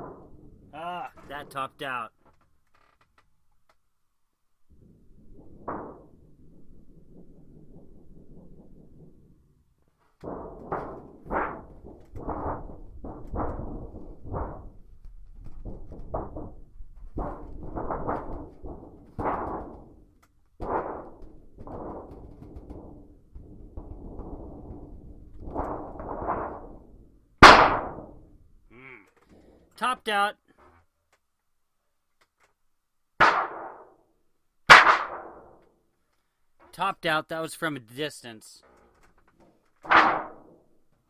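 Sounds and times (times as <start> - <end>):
loud crack of metal sheet: 0.0 - 1.4, 4.8 - 28.6, 33.2 - 35.8, 38.6 - 40.9.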